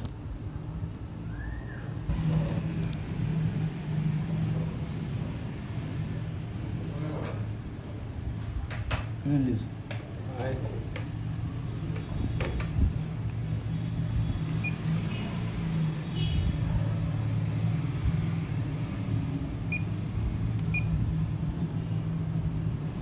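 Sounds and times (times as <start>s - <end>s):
short electronic beeps: 14.6s - 14.9s, 19.7s - 20.0s, 20.7s - 20.9s.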